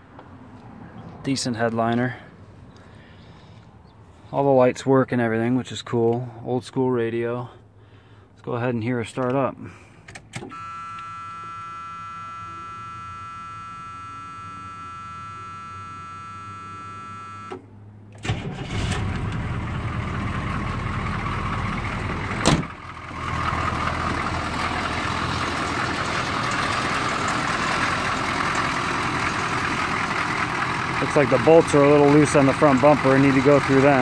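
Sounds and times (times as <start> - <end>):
diesel engine cranking and idling: 9.2 - 34.0
dashboard warning buzzer: 10.5 - 17.6.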